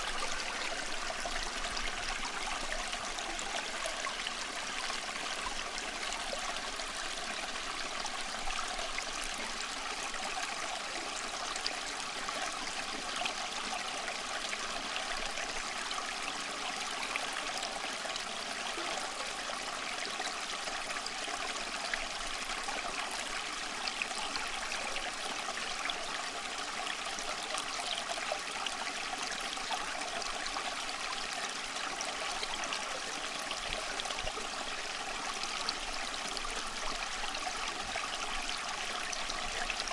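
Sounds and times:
rushing water: 0.0s - 39.9s.

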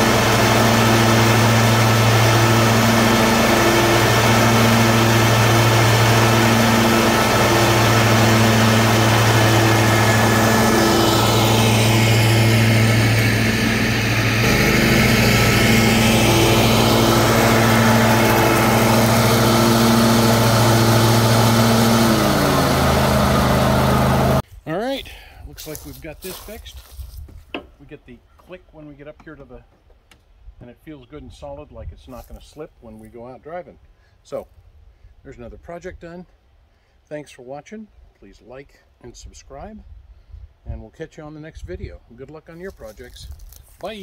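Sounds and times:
lawn tractor engine running: 0.0s - 24.4s.

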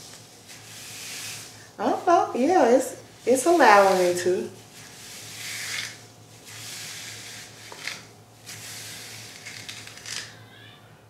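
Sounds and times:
brush swishing through hair: 0.0s - 10.0s.

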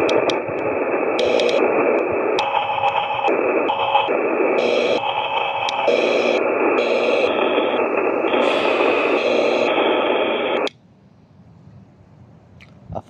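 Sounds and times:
radio static sweeping: 0.0s - 10.7s.

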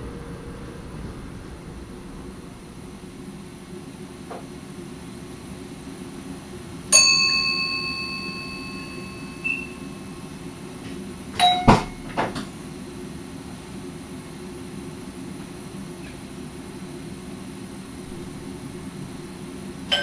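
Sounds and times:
train humming: 0.0s - 20.0s
bell-like ding: 7.0s - 9.9s, 11.4s - 12.0s.

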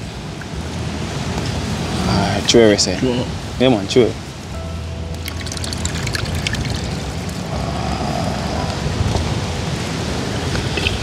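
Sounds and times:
liquid trickling through strainer: 5.2s - 7.1s.

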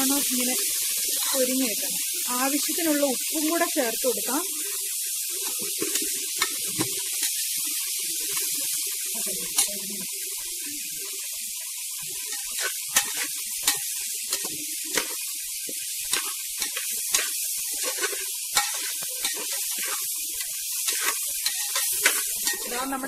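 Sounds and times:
rice sizzling in oil: 0.0s - 23.0s
spatula scraping metal pot: 16.1s - 23.0s.

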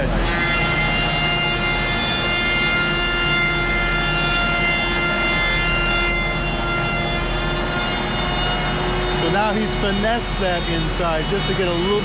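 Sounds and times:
router cutting wood: 0.0s - 12.0s.

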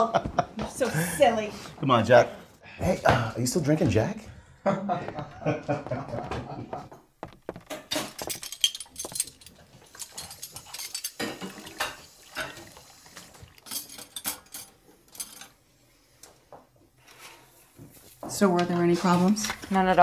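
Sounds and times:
dishes and cutlery clinking: 7.5s - 12.8s, 13.4s - 15.6s.

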